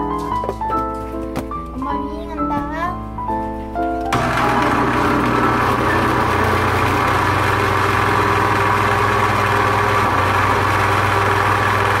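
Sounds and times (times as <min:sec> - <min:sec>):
blender motor running: 0:04.2 - 0:12.0.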